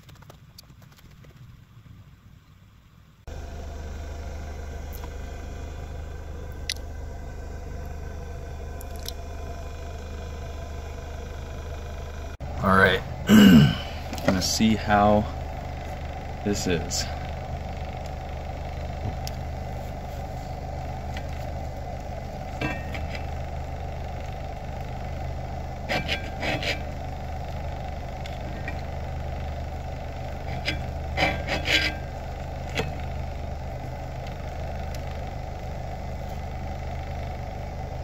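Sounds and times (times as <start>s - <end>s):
steady low hum: 0.4s - 38.0s.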